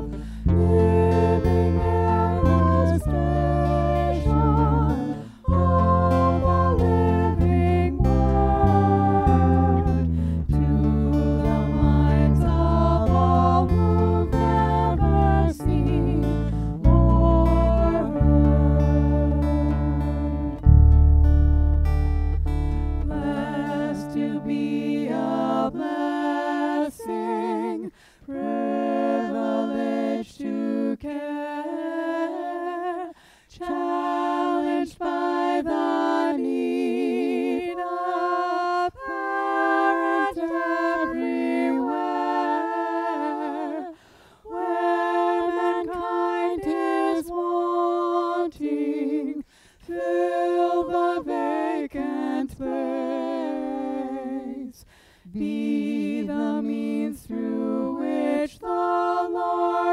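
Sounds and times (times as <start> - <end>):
person singing a slow hymn: 0.0 - 20.7, 22.9 - 59.9.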